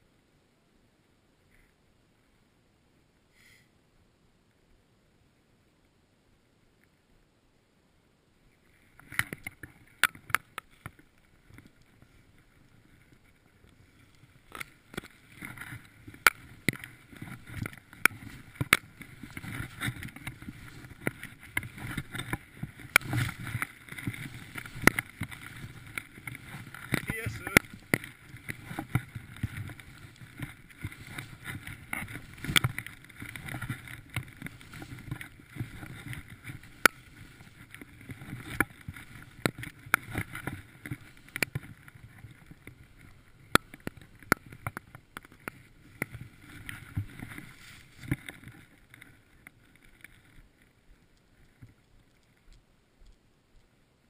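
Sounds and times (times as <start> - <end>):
skis rushing through powder snow: 12.0 - 44.2, 45.5 - 49.2.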